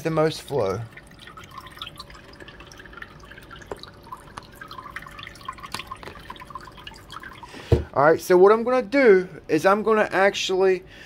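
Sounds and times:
water trickling into plastic bowl: 0.4 - 7.9.

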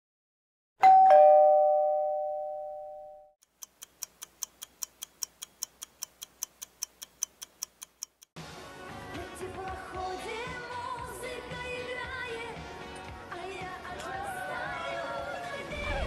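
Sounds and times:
fast even ticking: 3.4 - 8.3.

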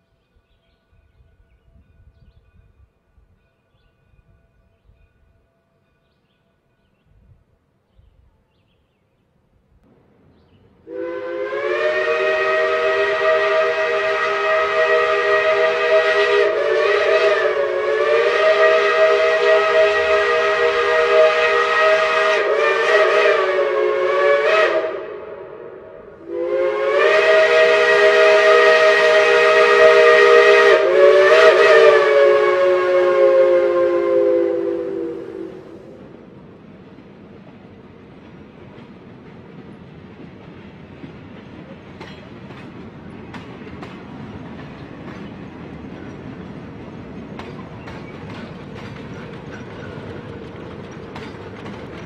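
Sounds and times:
steam locomotive chime whistle: 10.8 - 36.0
rush of steam: 10.8 - 52.0.

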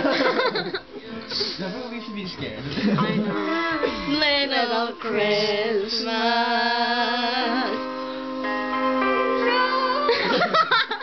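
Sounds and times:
women laughing: 0.0 - 1.7, 2.6 - 4.1, 10.0 - 11.0
women singing slow christmas song: 3.8 - 8.4, 9.3 - 10.7.

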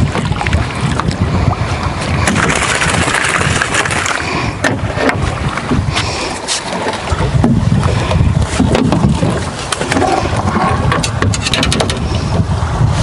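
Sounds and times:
water sloshing against boat: 0.0 - 13.0
wind buffeting microphone: 0.0 - 13.0
net splashing in water: 2.2 - 4.2.

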